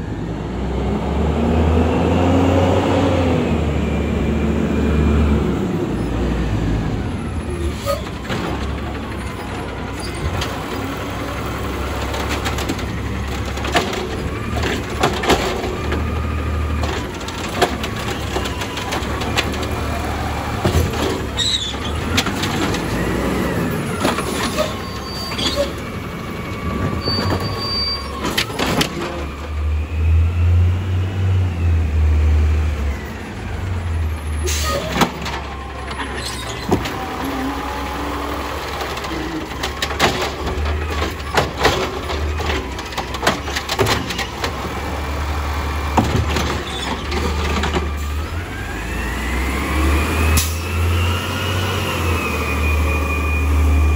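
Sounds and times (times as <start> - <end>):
garbage truck engine rumble: 0.0 - 53.9
clanks of cart against hopper: 11.9 - 16.1, 26.8 - 29.4, 38.7 - 44.6.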